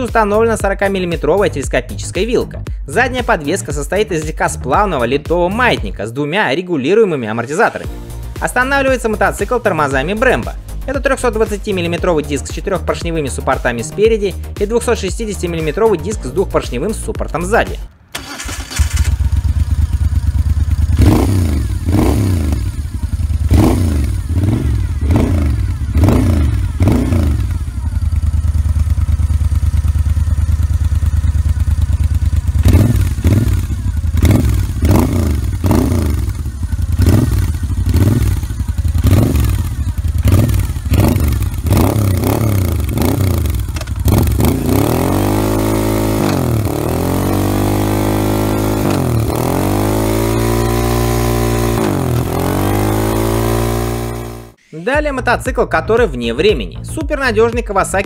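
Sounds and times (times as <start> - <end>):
motorcycle engine revving and idling: 0.0 - 5.8, 14.4 - 54.6.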